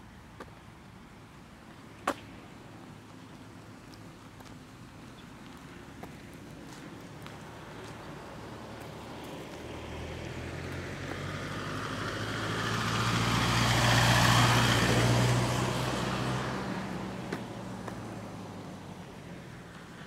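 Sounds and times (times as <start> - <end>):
vehicle driving past: 8.2 - 18.9.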